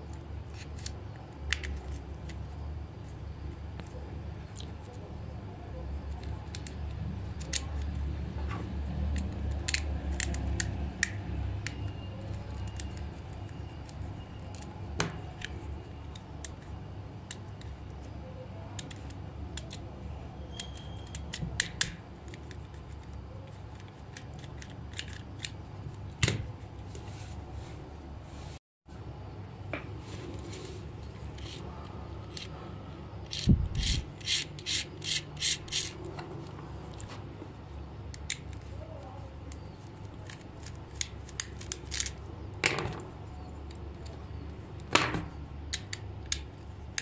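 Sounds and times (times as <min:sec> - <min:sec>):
plastic toy clicks and snaps: 0:09.1 - 0:11.8, 0:33.3 - 0:35.9.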